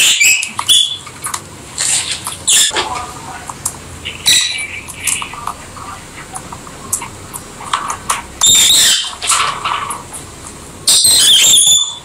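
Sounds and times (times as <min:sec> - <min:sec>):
loud high-pitched bird calls: 0:00.0 - 0:01.1, 0:01.8 - 0:02.8, 0:04.0 - 0:05.4, 0:08.4 - 0:10.2, 0:10.9 - 0:12.0
lovebirds chattering chirps: 0:00.0 - 0:12.0.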